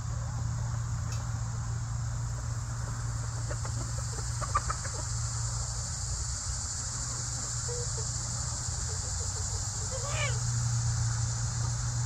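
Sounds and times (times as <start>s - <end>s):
steady high hiss: 0.0s - 12.0s
chickens clucking softly: 3.3s - 5.8s, 7.0s - 10.5s.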